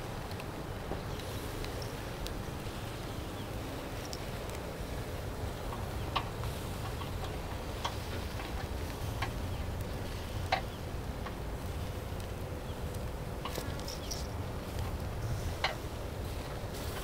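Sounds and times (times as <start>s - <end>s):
low steady rumble: 0.0s - 17.0s
skewers clicking on grill grate: 3.8s - 17.0s.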